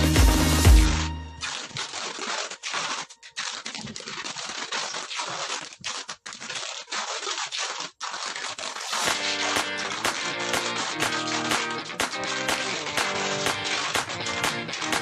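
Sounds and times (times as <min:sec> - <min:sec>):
music: 0:00.0 - 0:03.6, 0:09.0 - 0:15.0
packing tape pulled off roll: 0:01.4 - 0:15.0.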